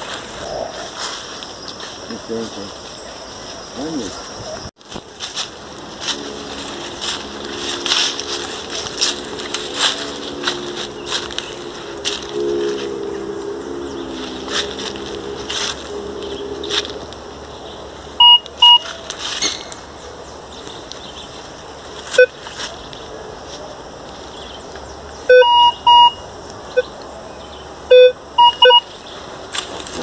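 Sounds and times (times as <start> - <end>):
metal detector beeps: 18.2 - 19.6, 22.2 - 22.4, 25.3 - 26.9, 27.9 - 28.9.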